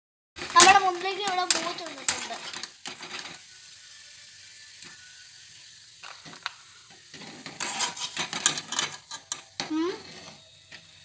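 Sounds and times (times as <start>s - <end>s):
metal utensils clinking: 0.4s - 3.4s, 6.0s - 11.0s
frying sizzle: 0.4s - 11.0s
utensils scraping: 0.5s - 3.4s, 7.1s - 11.0s.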